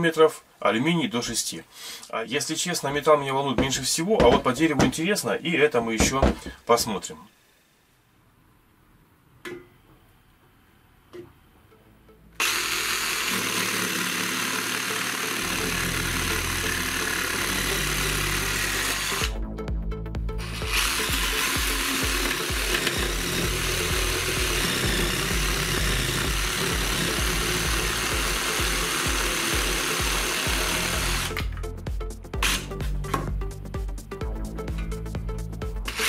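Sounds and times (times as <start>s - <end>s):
background music: 2.7s - 6.6s, 11.6s - 36.0s
jigsaw cutting wood: 12.4s - 19.4s, 20.4s - 31.6s, 32.4s - 32.7s.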